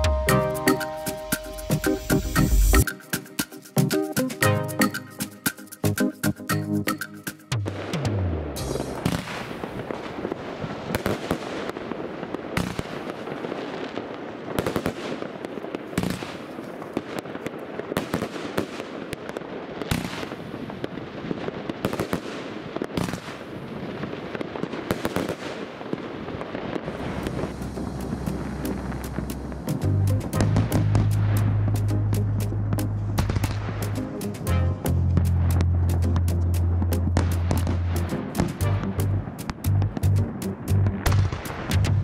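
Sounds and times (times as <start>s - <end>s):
continuous noisy rush: 26.8s - 42.0s.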